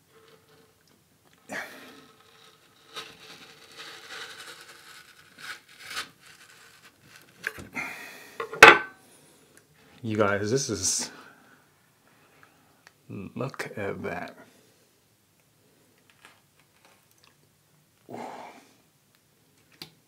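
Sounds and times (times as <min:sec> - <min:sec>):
knife scraping aloe leaf: 0:01.7 - 0:07.6.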